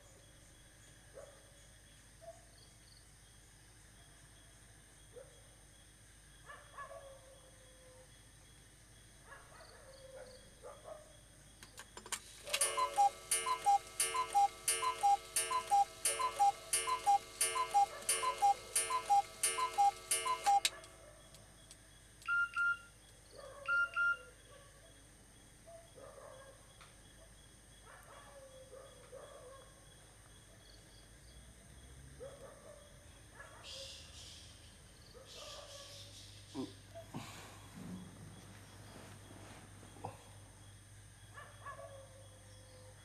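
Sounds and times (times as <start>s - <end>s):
phone two-note beeping: 12.6s - 20.7s, 22.3s - 22.9s, 23.7s - 24.3s
short high beeps: 12.6s - 20.7s, 22.3s - 22.9s, 23.7s - 24.2s.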